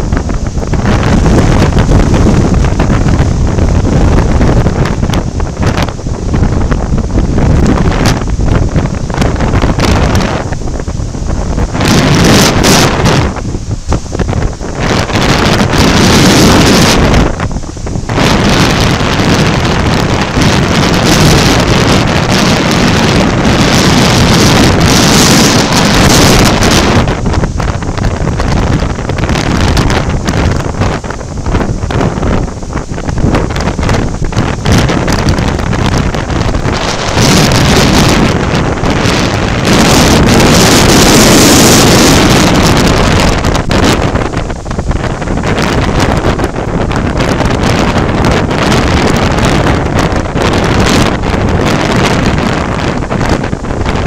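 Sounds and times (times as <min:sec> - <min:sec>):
heavy surf breaking: 0:00.0 - 0:54.0
strong wind buffeting microphone: 0:00.0 - 0:54.0.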